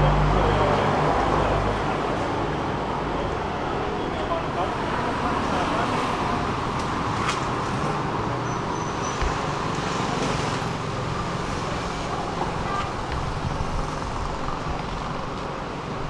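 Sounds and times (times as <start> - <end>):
road traffic noise: 0.0 - 16.0.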